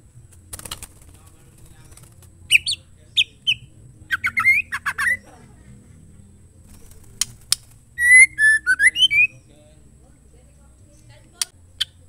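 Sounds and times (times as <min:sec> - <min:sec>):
bird chirping: 0:00.0 - 0:12.0
bird clicks: 0:00.3 - 0:01.1, 0:06.7 - 0:08.1, 0:11.0 - 0:12.0
bird whistled note: 0:08.0 - 0:09.4.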